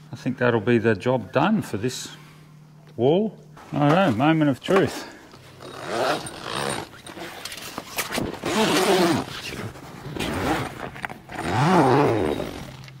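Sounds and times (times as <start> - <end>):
zipper running along fabric: 5.4 - 13.0.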